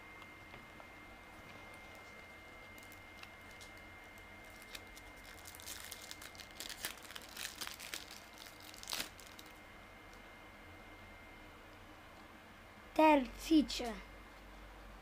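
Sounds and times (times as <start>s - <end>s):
cards and foil wrapper rustling: 1.7s - 9.6s.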